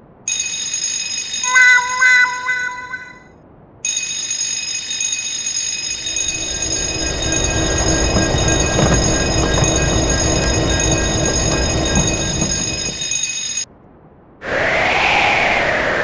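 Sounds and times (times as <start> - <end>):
crossing signal electronic tone: 0.3 - 3.3, 5.5 - 13.6
train rumble: 6.0 - 13.4.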